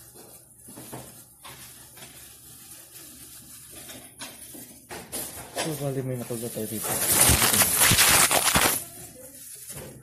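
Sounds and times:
cloth and gloves rustling: 6.2s - 9.7s.

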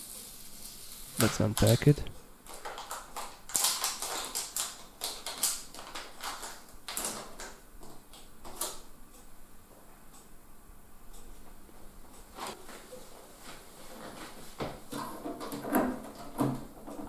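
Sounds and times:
plastic packaging crinkling: 0.4s - 7.6s.

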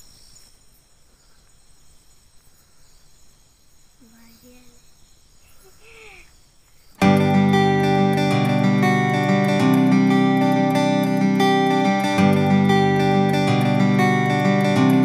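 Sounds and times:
crickets chirping: 0.0s - 15.0s
faint pitched calls: 2.4s - 7.0s.

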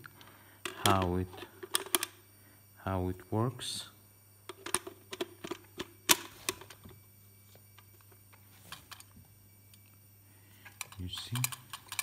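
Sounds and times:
metal and plastic clatter: 0.7s - 2.1s, 4.5s - 6.9s, 10.7s - 12.0s.

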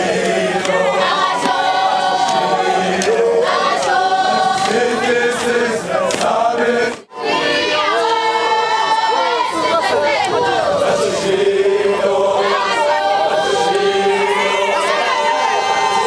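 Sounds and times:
crowd singing together: 0.0s - 16.0s.

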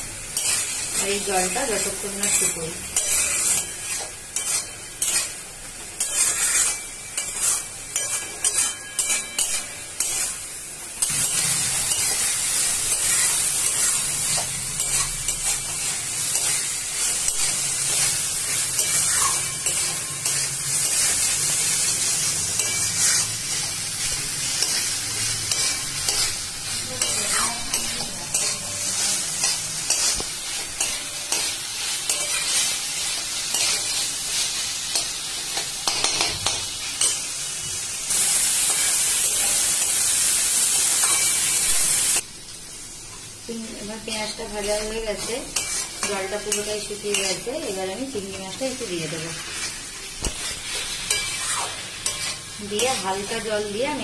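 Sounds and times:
frying sizzle: 0.0s - 54.0s
spatula scraping metal pan: 1.4s - 5.4s, 6.0s - 10.4s, 24.6s - 34.0s, 50.4s - 53.3s.

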